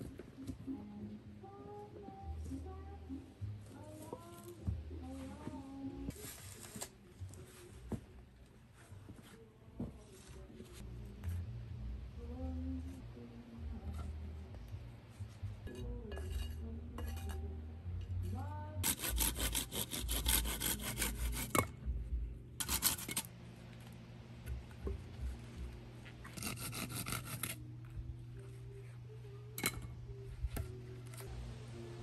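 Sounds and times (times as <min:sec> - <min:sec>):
hand saw cutting branch: 0:18.8 - 0:21.6, 0:22.6 - 0:23.3, 0:26.4 - 0:27.6.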